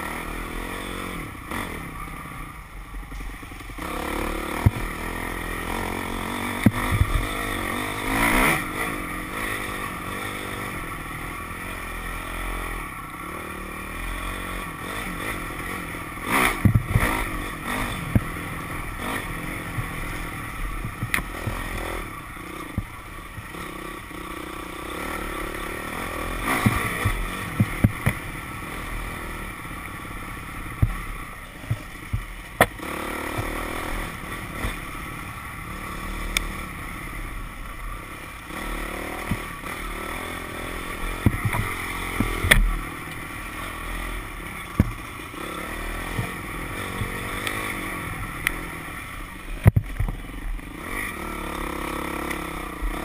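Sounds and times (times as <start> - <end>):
dirt bike engine revving: 0.0 - 53.0
knocks and clatter over bumps: 3.8 - 5.1, 5.7 - 7.4, 16.3 - 18.4, 19.0 - 22.0, 22.6 - 23.7, 26.3 - 28.4, 30.7 - 33.9, 39.0 - 43.2, 44.6 - 47.7, 49.6 - 50.7.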